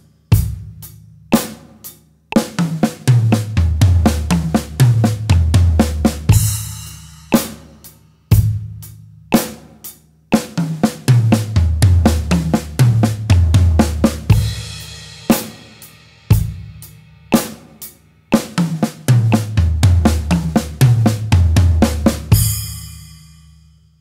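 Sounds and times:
slow drum kit groove: 0:00.0 - 0:24.0
drum fill down the toms: 0:00.3 - 0:23.2.

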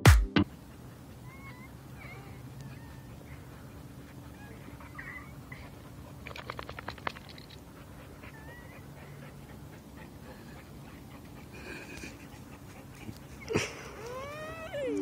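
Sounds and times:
dog whining: 0:00.7 - 0:09.4, 0:13.0 - 0:15.0.

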